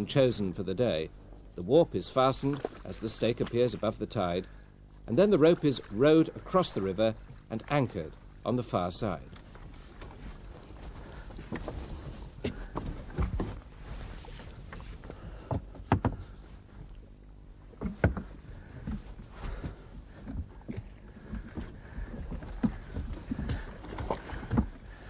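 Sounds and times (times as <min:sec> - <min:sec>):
steady low hum: 0:00.0 - 0:25.0
oars knocking in wooden boat: 0:09.3 - 0:17.0, 0:17.6 - 0:25.0.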